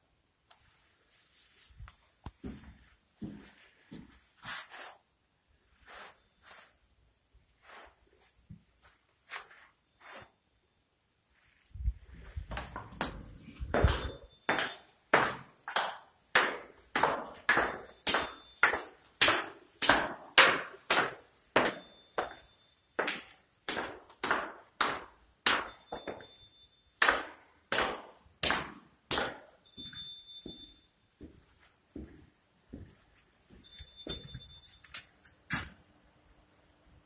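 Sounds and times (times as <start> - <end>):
echoing footsteps on stairs: 2.4 - 4.1, 12.4 - 26.4, 27.0 - 34.8.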